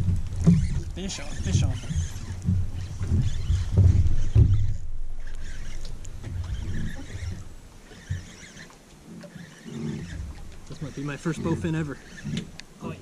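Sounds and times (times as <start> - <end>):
thumps on wooden dock: 0.0 - 0.8, 1.4 - 4.8
fishing rod handling noise: 0.0 - 12.8.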